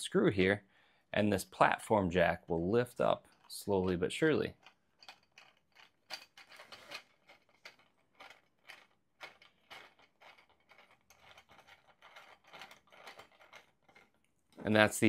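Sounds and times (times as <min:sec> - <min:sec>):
plastic clicks and rasps: 0:03.2 - 0:14.3.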